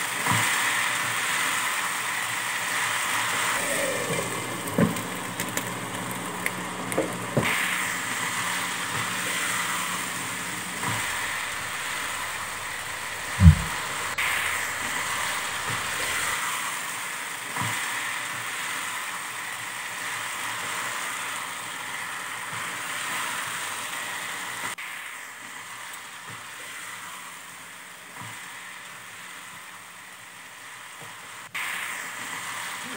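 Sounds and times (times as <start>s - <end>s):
chicken sizzling in a pan: 0.0s - 32.9s
loud thump: 13.3s - 14.2s.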